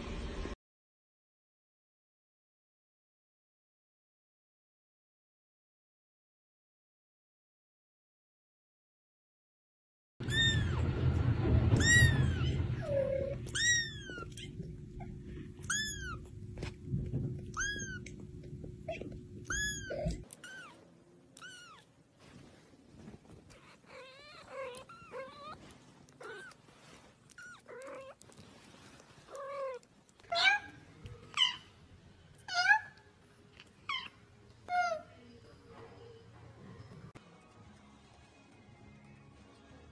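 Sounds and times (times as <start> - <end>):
low background noise: 10.7 - 39.9
kittens mewing: 11.8 - 16.4, 18.8 - 21.9, 23.5 - 28.3.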